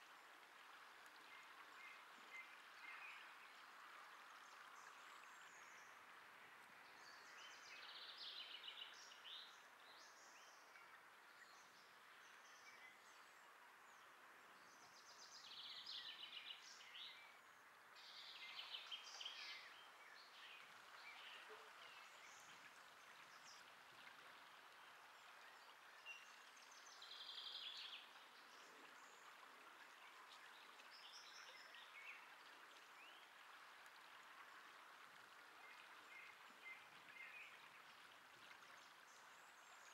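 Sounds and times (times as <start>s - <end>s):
small birds twittering: 25.2s - 29.3s.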